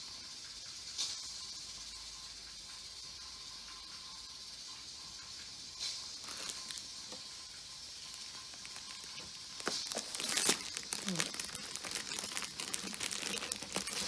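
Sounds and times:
faint steady hiss: 0.0 - 14.0
plastic sheeting rustling: 6.2 - 6.9, 8.1 - 14.0.

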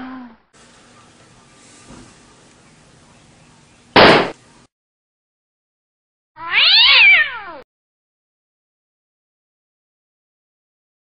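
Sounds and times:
gunshot blast: 4.0 - 4.4.

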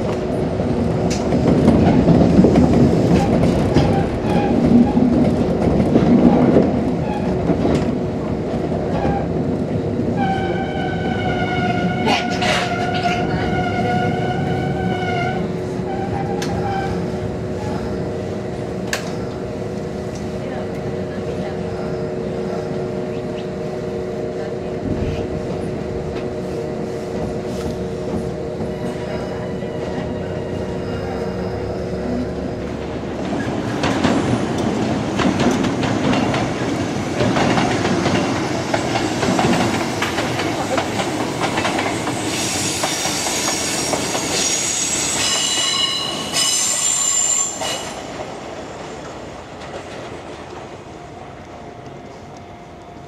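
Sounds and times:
electric hum from a train: 0.0 - 38.3, 48.3 - 53.0
wheels clattering over rail joints: 32.8 - 42.2
high-pitched wheel squeal: 42.3 - 48.0.

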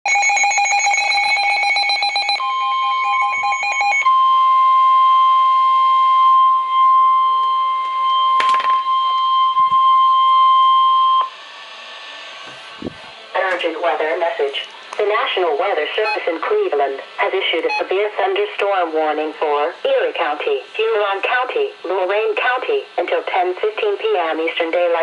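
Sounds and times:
rapid electronic alarm beeping: 0.1 - 11.3, 16.0 - 16.3, 17.6 - 18.0
steady alarm tone: 0.1 - 14.2, 15.2 - 16.4.

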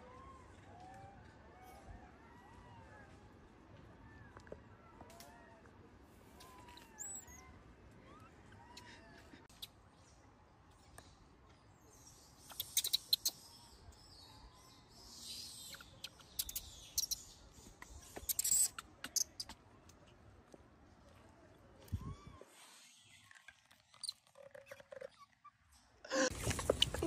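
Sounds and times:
baby monkeys cooing: 12.4 - 13.4, 15.6 - 17.3, 18.1 - 19.6
monkeys squealing: 18.3 - 19.5
monkeys scuffling: 26.3 - 27.0.

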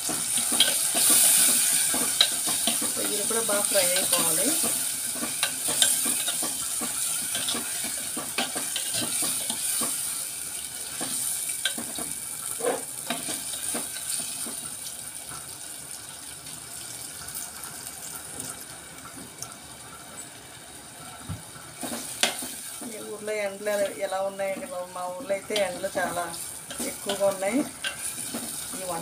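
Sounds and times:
prawns sizzling in oil: 0.0 - 29.0
metal spoon stirring pot: 0.1 - 10.1, 23.8 - 29.0.

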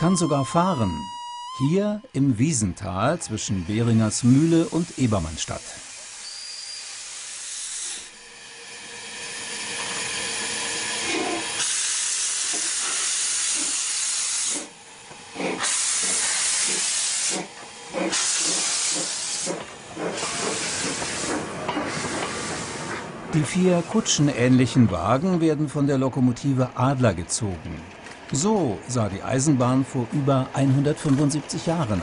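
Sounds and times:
steam hissing: 3.2 - 24.5
steam locomotive puffing: 3.4 - 24.3.

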